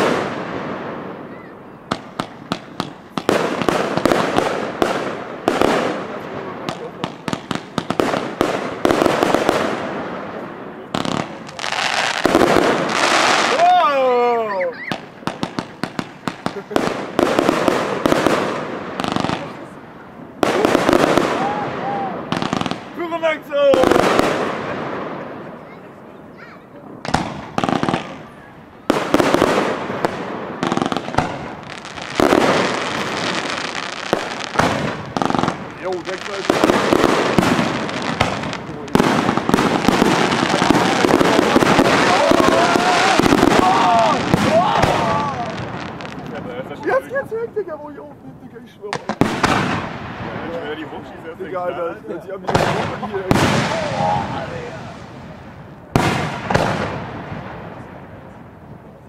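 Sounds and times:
fireworks bangs and cracks: 0.0s - 59.0s
fireworks crackling hiss: 0.0s - 59.0s
firework shells bursting: 28.9s - 46.5s, 48.9s - 50.5s.

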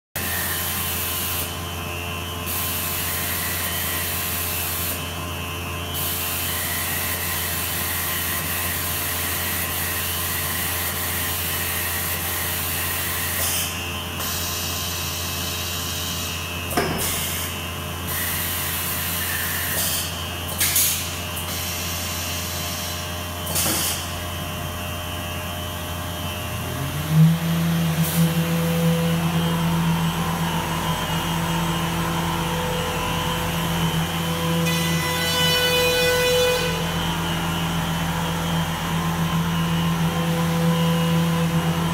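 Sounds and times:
motor tone rising: 25.2s - 41.9s
router spindle cutting wood: 26.5s - 41.9s.

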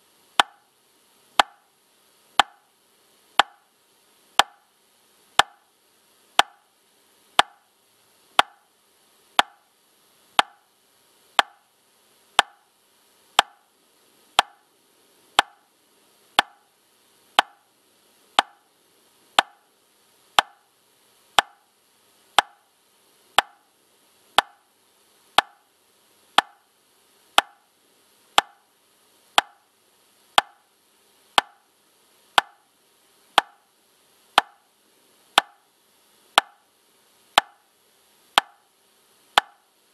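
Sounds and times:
metronome ticking: 0.4s - 0.7s, 1.4s - 1.7s, 2.4s - 2.7s, 3.4s - 3.6s, 4.4s - 4.6s, 5.4s - 5.6s, 6.4s - 6.6s, 7.4s - 7.6s, 8.4s - 8.7s, 9.4s - 9.6s, 10.4s - 10.6s, 11.4s - 11.6s, 12.4s - 12.6s, 13.4s - 13.6s, 14.4s - 14.6s, 15.4s - 15.6s, 16.4s - 16.7s, 17.4s - 17.6s, 18.4s - 18.7s, 19.4s - 19.6s, 20.4s - 20.6s, 21.4s - 21.6s, 22.4s - 22.6s, 23.4s - 23.6s, 24.4s - 24.6s, 25.4s - 25.6s, 26.4s - 26.6s, 27.4s - 27.6s, 28.4s - 28.6s, 29.4s - 29.6s, 30.4s - 30.6s, 31.4s - 31.6s, 32.4s - 32.6s, 33.4s - 33.6s, 34.4s - 34.6s, 35.4s - 35.6s, 36.4s - 36.6s, 37.4s - 37.6s, 38.4s - 38.6s, 39.4s - 39.6s.

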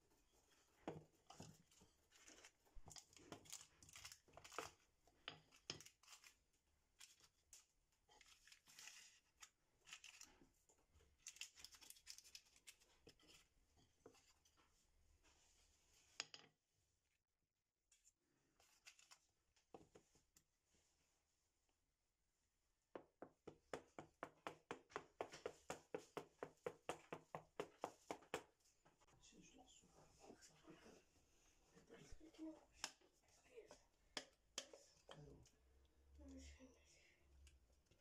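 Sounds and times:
pastry and paper tearing crinkling: 2.1s - 4.8s, 5.4s - 10.4s, 11.1s - 13.4s.

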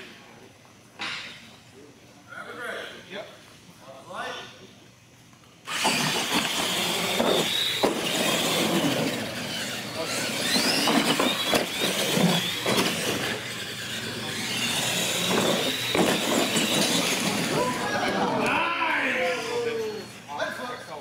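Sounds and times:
electric motors whining: 5.6s - 20.7s
toy trucks knocking on ramps: 14.6s - 17.4s.

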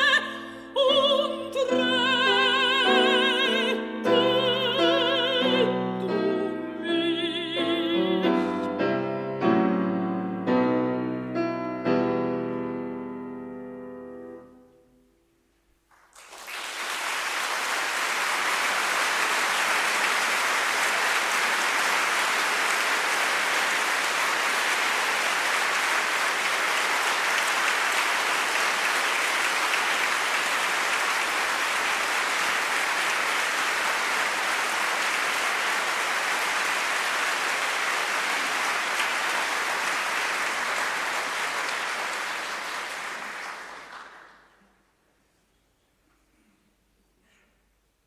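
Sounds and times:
audience applauding: 15.8s - 44.8s.

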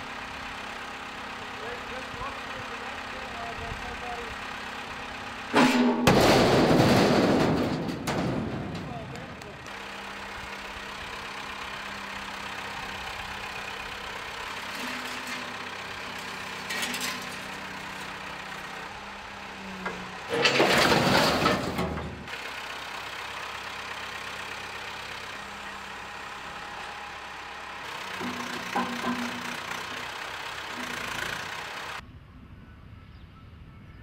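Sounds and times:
crane engine running: 0.0s - 34.0s
scrap metal crashing into skip: 5.6s - 9.1s, 14.6s - 18.1s, 20.3s - 22.3s, 28.2s - 30.0s.

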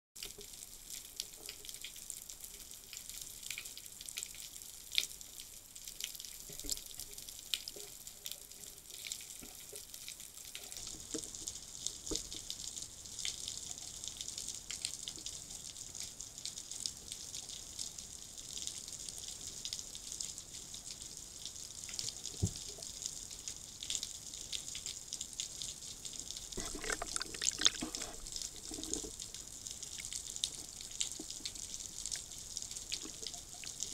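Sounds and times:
small clicks and crackles: 0.2s - 16.6s, 21.8s - 33.9s
water churning: 26.6s - 28.8s.

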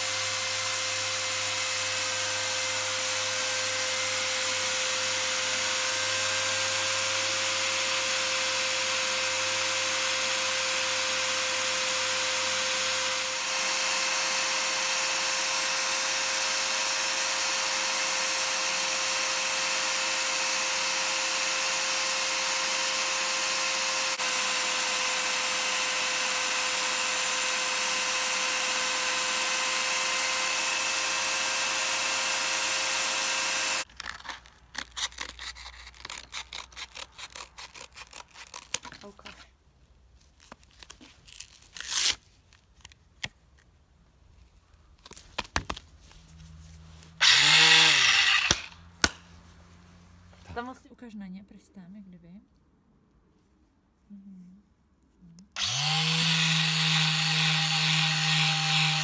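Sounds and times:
scissors cutting sandpaper: 34.0s - 39.2s.

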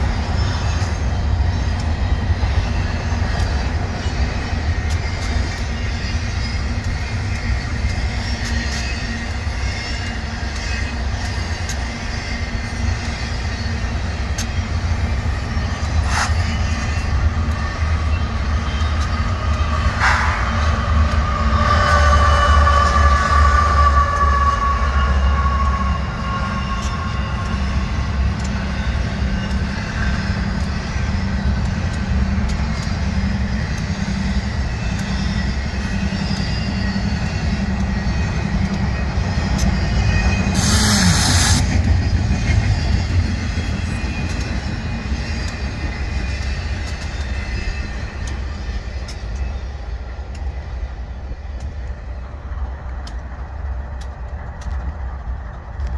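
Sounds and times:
freight train rumbling past: 0.0s - 55.9s
sharp burst of hiss: 40.6s - 41.7s.

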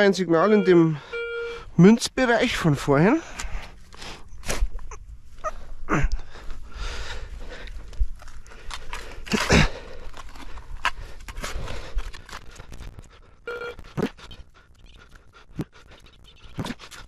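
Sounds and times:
metal detector tone: 0.4s - 1.7s.

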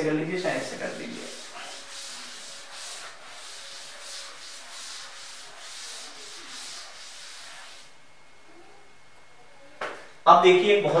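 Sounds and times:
duster rubbing on chalkboard: 0.0s - 8.0s.

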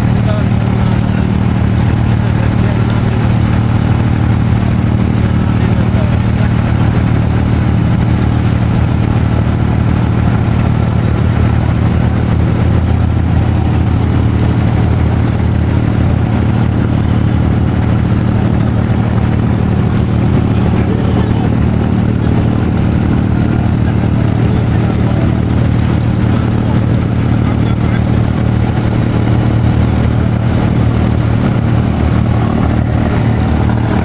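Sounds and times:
boat engine low drone: 0.0s - 34.0s.

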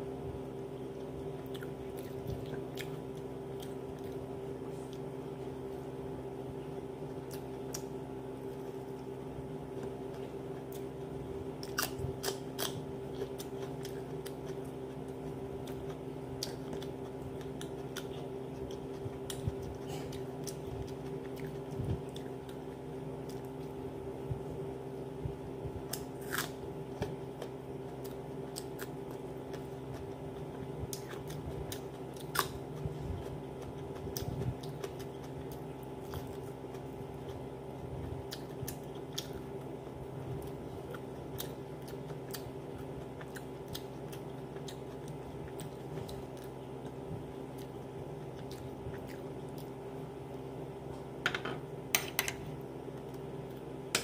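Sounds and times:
person chewing and biting food: 25.8s - 50.5s.

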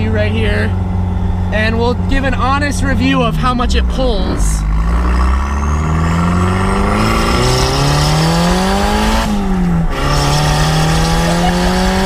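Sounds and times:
car engine revving at full throttle: 0.0s - 12.0s.

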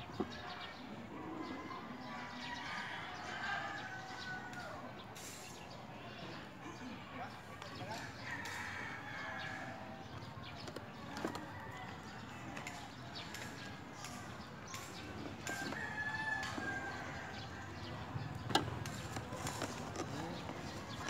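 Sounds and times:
cardboard and plastic handled: 18.5s - 21.0s.

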